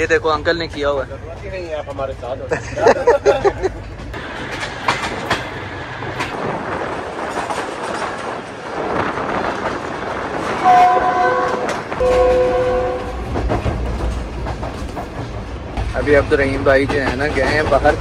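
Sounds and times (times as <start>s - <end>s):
train wheels clacking: 0.0s - 2.4s, 3.2s - 18.0s
train horn blast: 10.6s - 13.3s.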